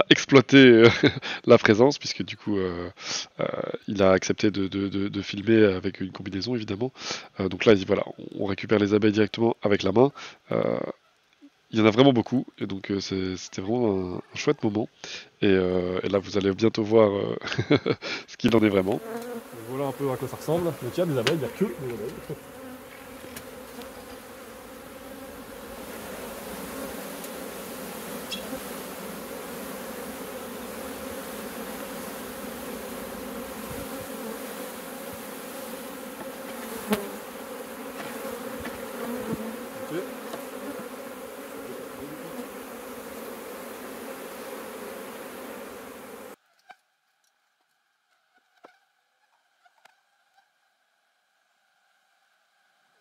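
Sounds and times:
honeybee swarm buzzing: 18.5 - 46.4.

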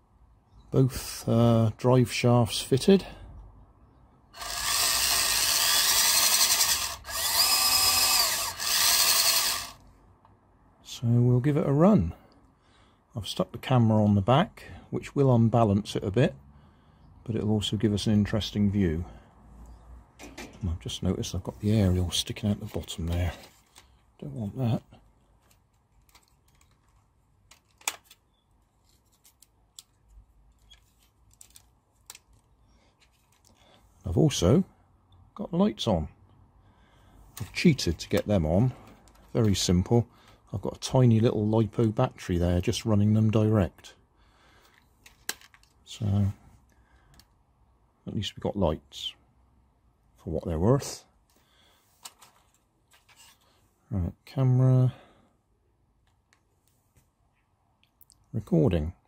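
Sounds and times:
electric motor and gearbox whirring: 4.4 - 9.8
motor whine: 4.4 - 9.8
plastic clicks and rubbing: 25.4 - 28.2, 44.6 - 45.8.

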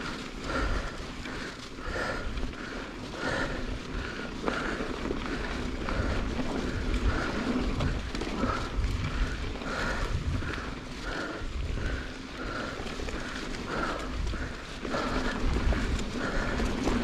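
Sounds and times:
bike tyres rumbling on dirt trail: 0.0 - 17.0
wind buffeting microphone: 0.0 - 17.0.

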